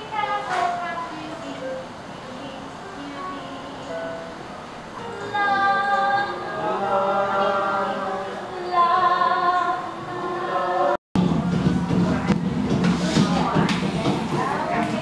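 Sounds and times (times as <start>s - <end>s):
women singing together: 5.0s - 11.0s.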